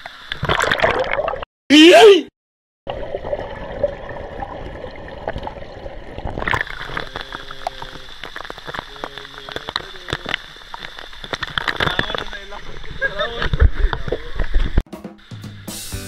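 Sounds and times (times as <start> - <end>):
sharp water splashes: 0.3 - 1.5, 2.9 - 14.6
waterfall pouring into pool: 2.9 - 14.2
muffled underwater rushing water: 2.9 - 14.8.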